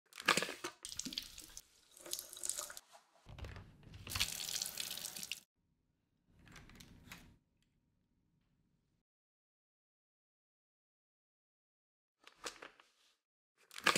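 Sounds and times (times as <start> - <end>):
water running from a tap: 0.8 - 2.8, 4.1 - 5.5.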